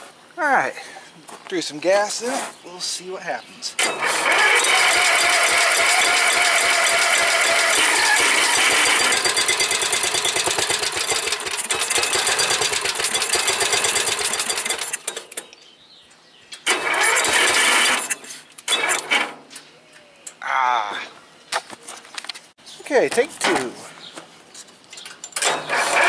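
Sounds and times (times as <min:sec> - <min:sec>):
engine cranking with starter: 0:03.8 - 0:15.5, 0:16.6 - 0:19.4, 0:25.1 - 0:26.0.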